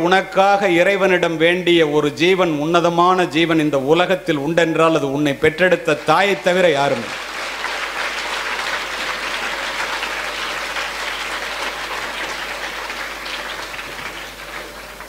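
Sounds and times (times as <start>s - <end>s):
children clapping: 5.9s - 15.0s.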